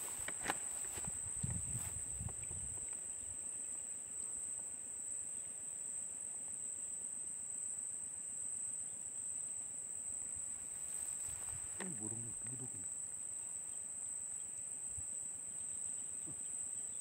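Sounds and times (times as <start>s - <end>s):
insects singing: 0.0s - 4.6s, 10.2s - 17.0s.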